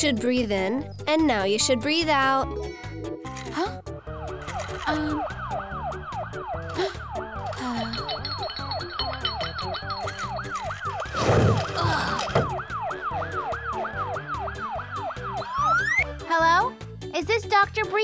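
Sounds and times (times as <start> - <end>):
background music: 0.0 - 18.0
ambulance siren yelp: 4.0 - 16.2.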